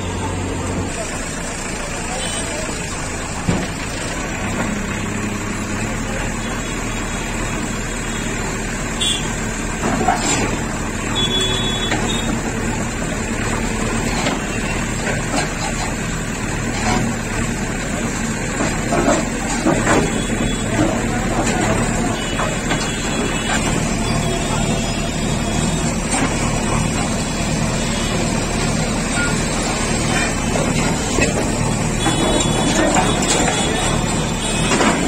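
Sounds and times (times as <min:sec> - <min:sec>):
diesel engine running: 0:00.0 - 0:35.0
concrete slabs knocking and clattering: 0:18.5 - 0:22.9.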